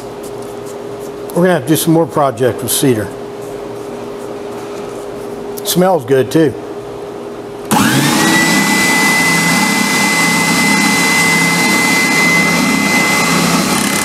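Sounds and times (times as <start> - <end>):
shop vacuum whine: 7.6 - 14.0
spindle sander running: 7.7 - 14.0.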